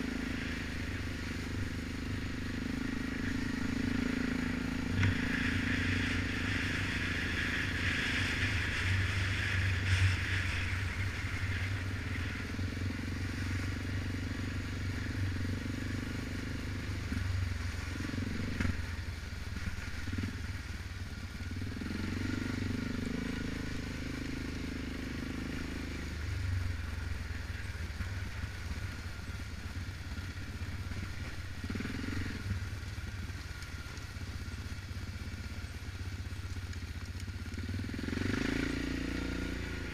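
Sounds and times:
atv engine revving: 0.0s - 19.0s, 21.6s - 26.9s, 28.3s - 32.7s, 37.1s - 39.9s.

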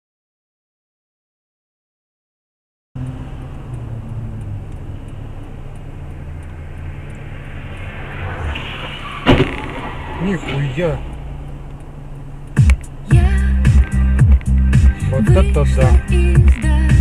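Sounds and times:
car engine and road noise: 3.0s - 17.0s
loud collision bang: 8.4s - 10.7s.

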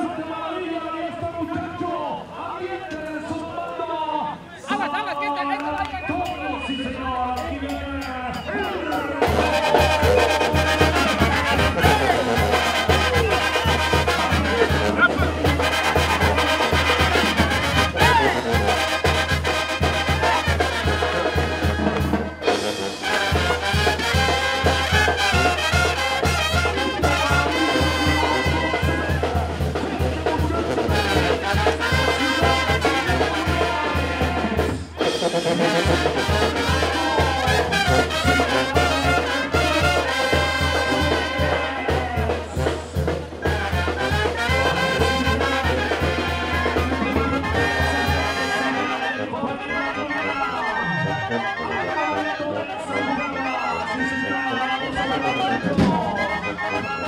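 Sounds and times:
trumpets and trombones: 6.0s - 57.0s.

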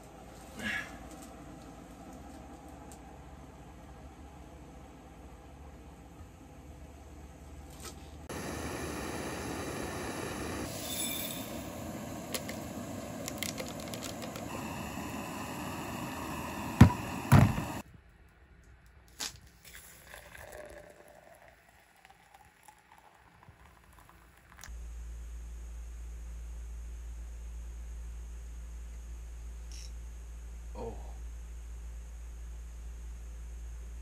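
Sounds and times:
gas stove burning: 8.2s - 17.9s
water boiling: 8.3s - 17.8s, 19.7s - 24.7s
scattered clicks: 13.2s - 14.5s
loud knocks: 16.8s - 17.8s.

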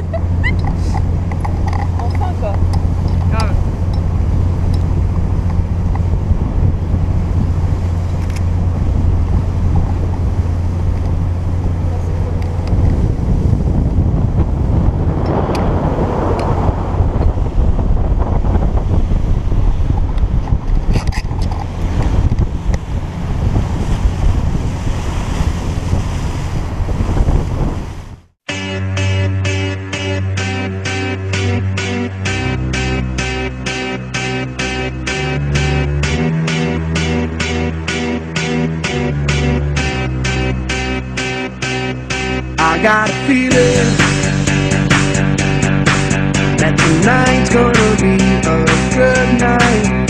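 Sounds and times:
choppy water against boat: 0.0s - 28.4s
wind buffeting microphone: 0.0s - 28.4s.

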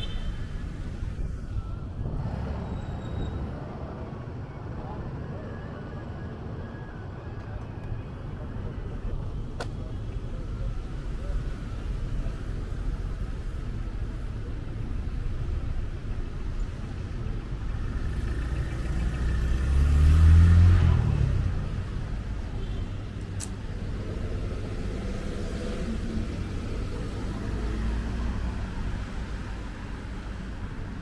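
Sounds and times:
traffic rumble: 0.0s - 31.0s
vehicle passing close: 18.0s - 21.8s.

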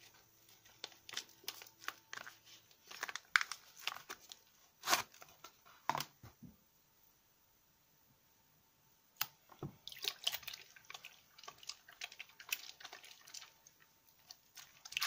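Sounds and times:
paper wrapper crinkling: 0.0s - 5.6s, 11.4s - 15.0s.

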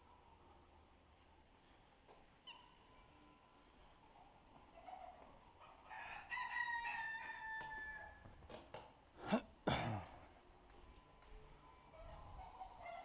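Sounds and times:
fowl crowing: 5.9s - 8.2s.

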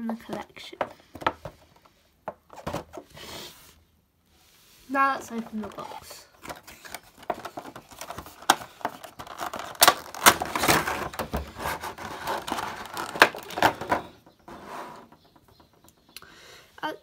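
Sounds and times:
plastic tray crinkling and clicking: 5.4s - 14.2s.

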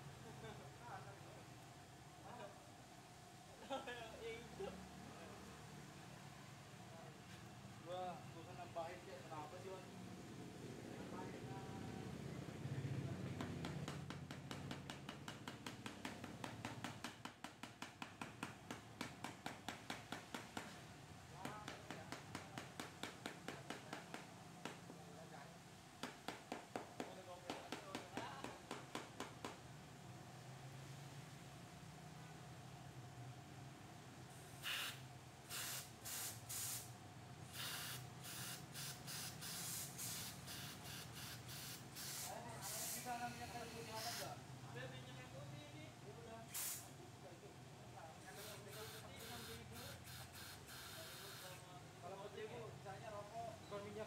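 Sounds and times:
compressed air blow gun hissing: 34.6s - 43.2s, 46.5s - 46.9s, 48.4s - 51.5s.

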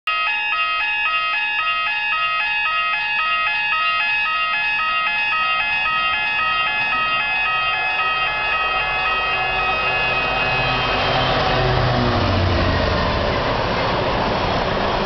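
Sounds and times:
two-tone warning horn warble: 0.1s - 14.8s.

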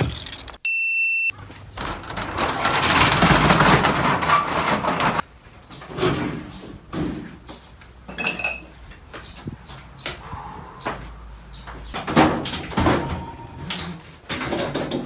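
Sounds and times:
metal roller shutter rattling: 1.6s - 5.3s.

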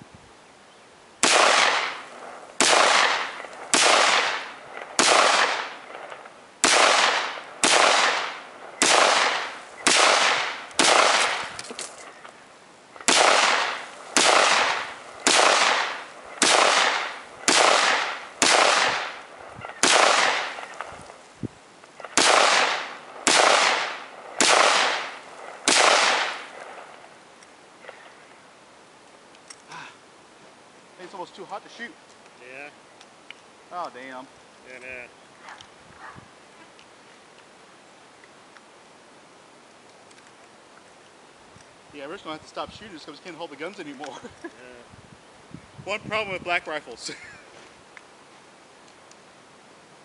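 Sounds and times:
rifle shots: 1.2s - 12.0s, 13.0s - 21.0s, 22.0s - 27.0s.

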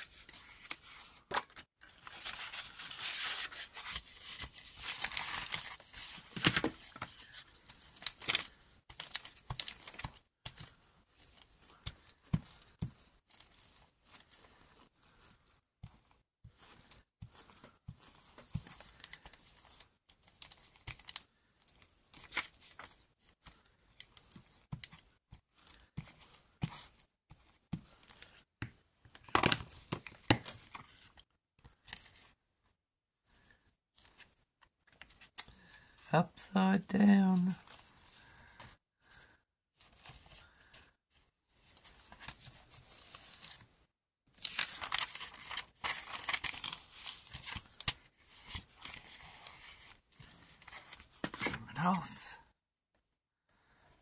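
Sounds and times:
paper rustling and sliding: 0.0s - 16.0s, 44.4s - 51.6s.

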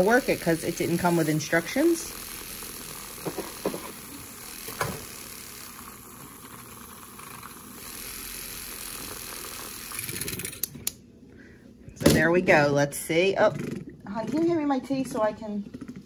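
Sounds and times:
milk frother motor whirring: 0.0s - 11.0s.

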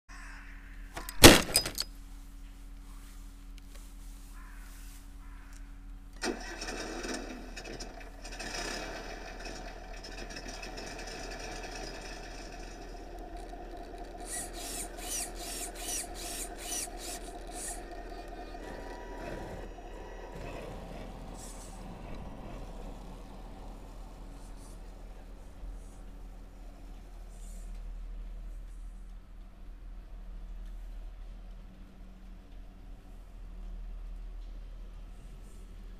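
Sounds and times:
simulated truck engine: 6.2s - 28.2s
small electric motors whining: 8.1s - 25.0s.

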